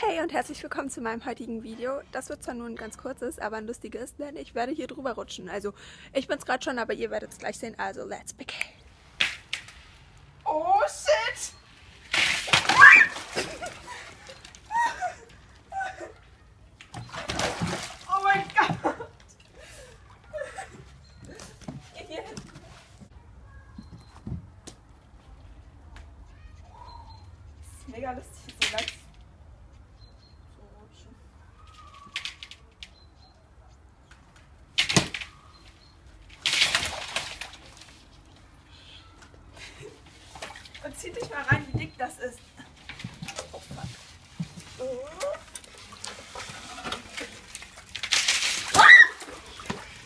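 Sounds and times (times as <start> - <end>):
water splashing: 11.8 - 15.2, 16.8 - 19.1, 36.3 - 38.3, 43.0 - 50.0
girl crying out: 14.7 - 16.2.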